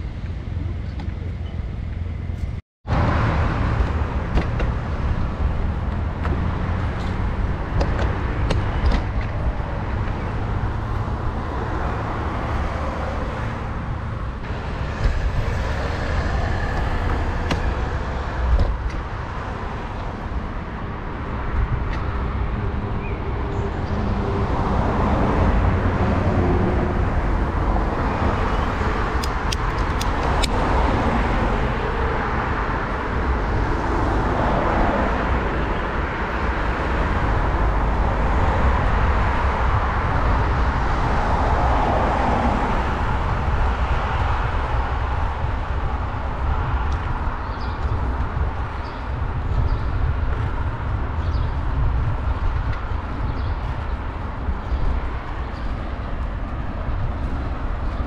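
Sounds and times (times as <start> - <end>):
cars driving past: 2.9 - 58.0.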